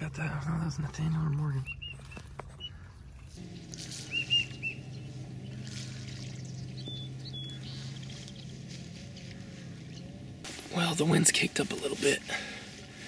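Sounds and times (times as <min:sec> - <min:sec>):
steady low hum: 0:03.3 - 0:13.0
high whistled bird chirps: 0:04.1 - 0:05.1, 0:06.2 - 0:08.1.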